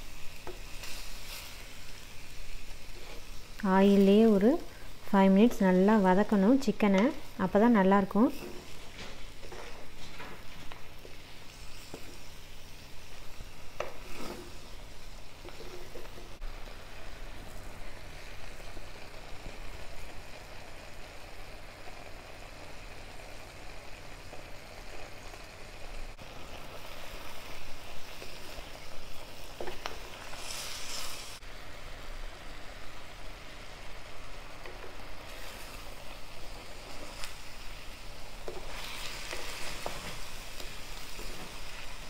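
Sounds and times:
chicken sizzling in oil: 0.0s - 42.0s
spatula scraping pan: 13.8s - 14.6s.

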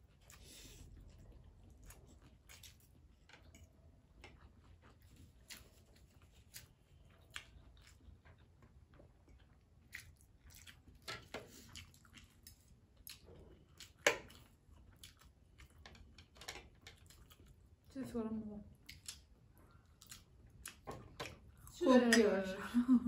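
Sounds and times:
noodles slurped and chewed: 0.0s - 17.9s.

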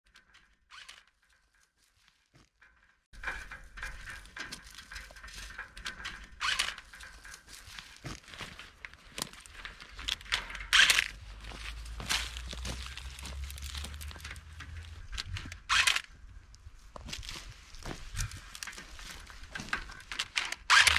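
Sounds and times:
vines rustling and crinkling: 0.0s - 20.9s
wind buffeting microphone: 14.4s - 19.8s.

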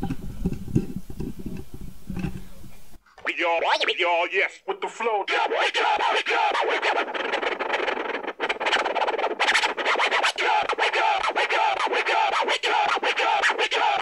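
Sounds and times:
vinyl scratching: 3.1s - 14.0s.

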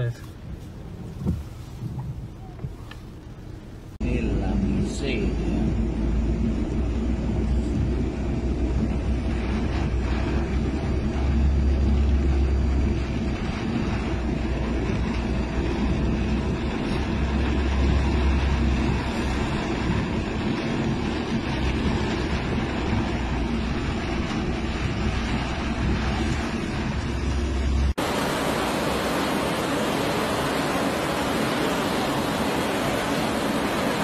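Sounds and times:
low rumble: 0.8s - 34.0s
floodwater rushing and splashing: 7.0s - 34.0s.

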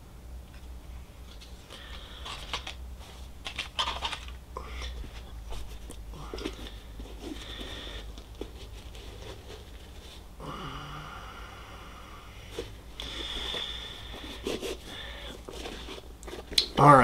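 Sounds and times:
cardboard tags rustling: 1.3s - 10.2s, 12.5s - 17.0s.

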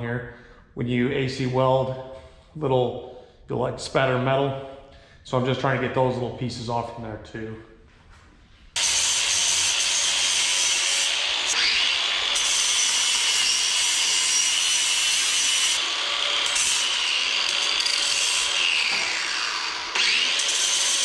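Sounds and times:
angle grinder sanding steel: 8.8s - 21.0s.

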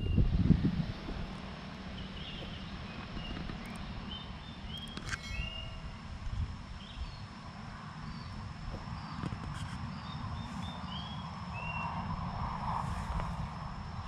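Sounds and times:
steady low rumble: 0.0s - 14.0s
birds chirping: 1.5s - 12.0s.

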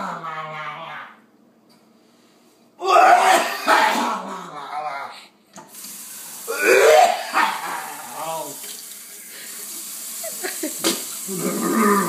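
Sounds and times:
person making strained sounds: 2.8s - 5.3s, 6.5s - 8.6s, 11.3s - 12.0s.

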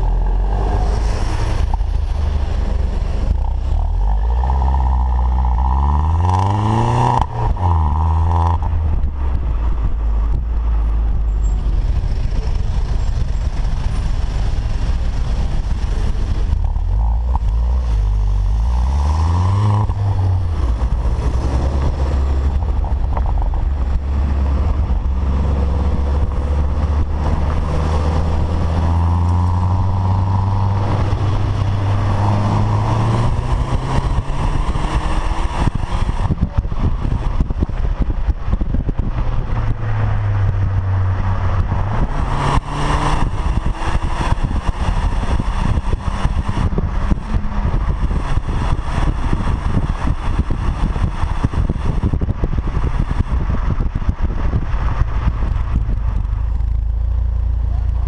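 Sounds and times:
car exhaust drone: 0.0s - 58.0s.

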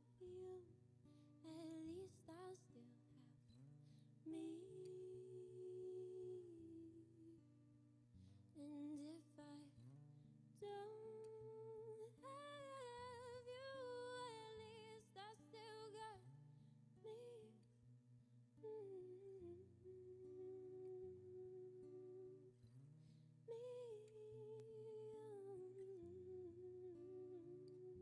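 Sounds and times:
woman humming into a microphone: 4.2s - 7.4s, 18.6s - 22.6s, 23.5s - 28.0s.

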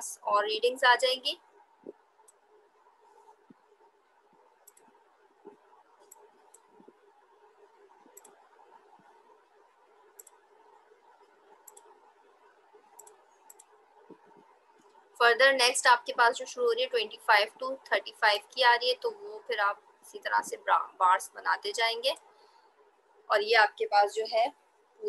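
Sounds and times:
faint sharp clicks: 4.6s - 6.8s.

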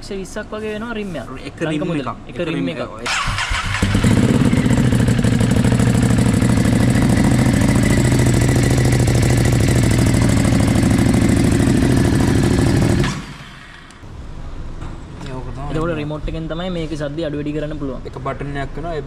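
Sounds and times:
motorcycle engine idling: 3.1s - 13.6s.

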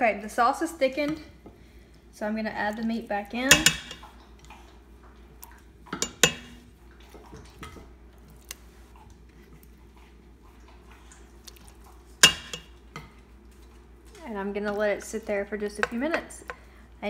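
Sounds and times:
tongs clinking on metal pot: 3.5s - 4.1s, 6.0s - 6.6s, 12.2s - 12.7s.

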